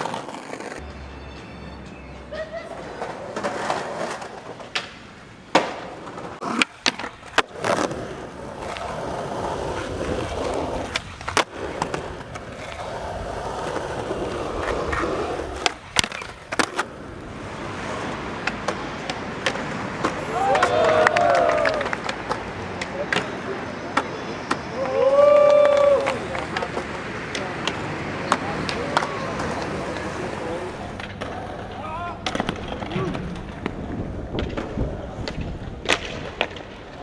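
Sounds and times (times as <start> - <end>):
skateboard wheels rolling on concrete: 0.0 - 37.0
skateboard clacks: 2.7 - 37.0.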